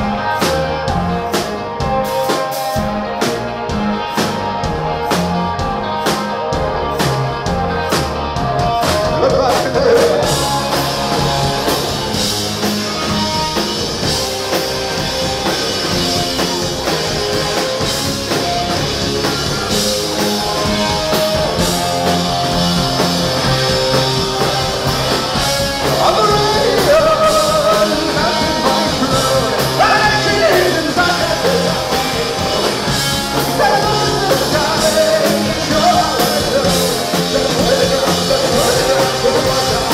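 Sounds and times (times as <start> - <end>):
rock band playing: 0.0 - 39.9
lead vocal singing: 8.9 - 10.8, 25.7 - 39.9.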